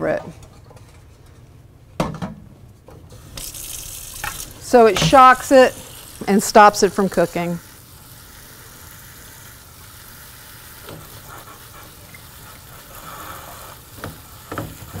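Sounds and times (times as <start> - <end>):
tap water running into sink: 3.1 - 15.0.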